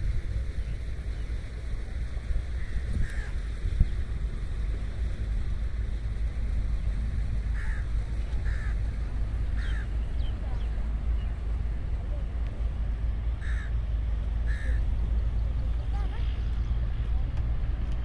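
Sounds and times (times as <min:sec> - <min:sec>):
wind rumbling on microphone: 0:00.0 - 0:18.0
bird calls: 0:07.5 - 0:11.4.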